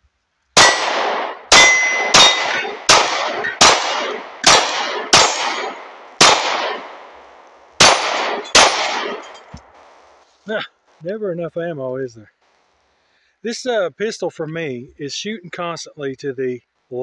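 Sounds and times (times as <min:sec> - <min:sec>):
pistol shots: 0:00.6 - 0:10.2
steel targets clanging: 0:01.5 - 0:10.0.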